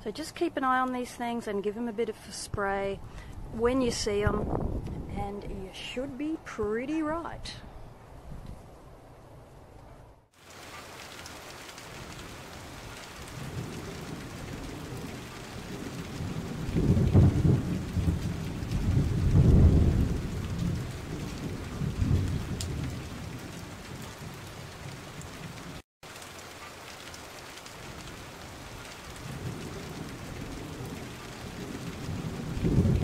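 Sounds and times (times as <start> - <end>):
steady rain falling: 10.4 - 33.0
rolling thunder: 11.9 - 25.8, 27.8 - 33.0.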